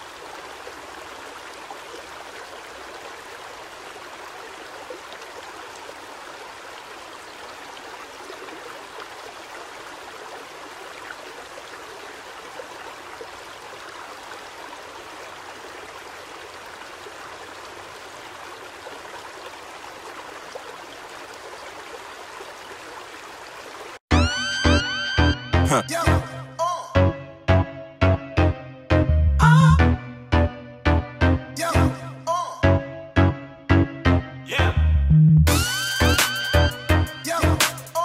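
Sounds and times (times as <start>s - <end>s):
river babbling over rocks: 0.0s - 24.0s.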